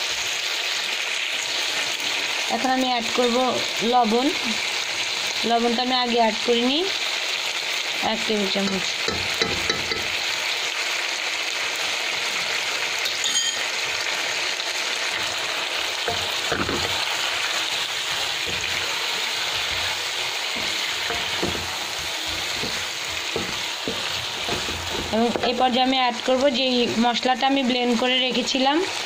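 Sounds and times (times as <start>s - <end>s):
food sizzling in a pan: 0.0s - 29.0s
wooden spatula scraping a pan: 16.1s - 26.0s.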